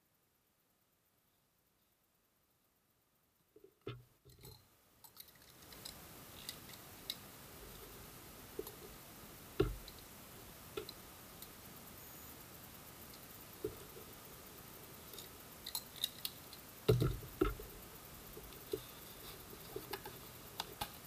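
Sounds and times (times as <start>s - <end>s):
faint steady hiss: 0.0s - 21.0s
thump: 16.9s - 17.6s.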